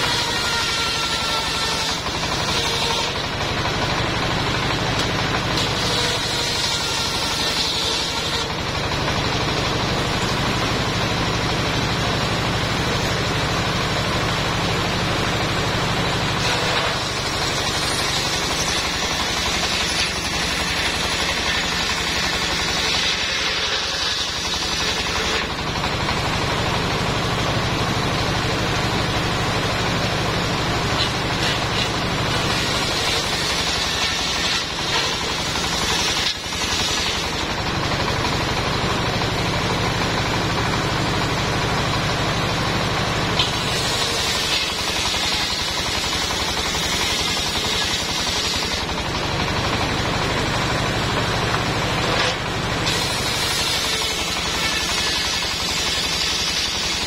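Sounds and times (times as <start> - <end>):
circular saw cutting log: 0.0 - 57.0
engine running under load: 0.0 - 57.0.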